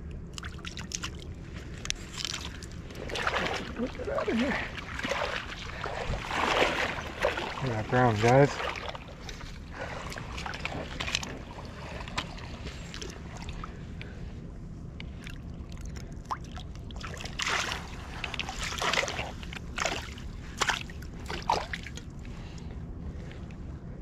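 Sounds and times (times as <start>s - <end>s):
water splashing around net: 2.2s - 9.2s, 16.3s - 22.0s.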